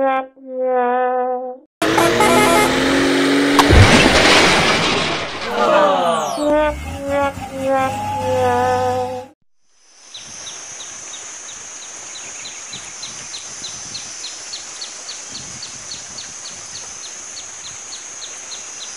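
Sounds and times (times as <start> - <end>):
short falling chirps: 3.6 - 8.5.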